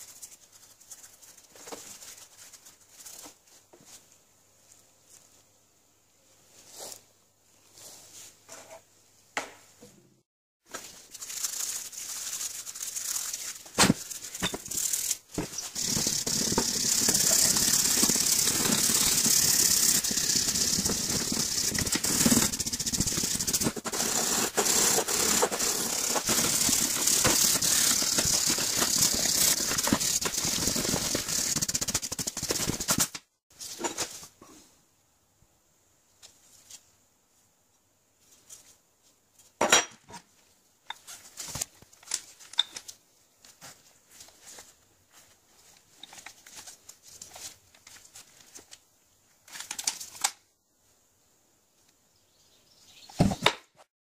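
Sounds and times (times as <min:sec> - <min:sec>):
brush scrubbing metal: 0:10.8 - 0:33.1.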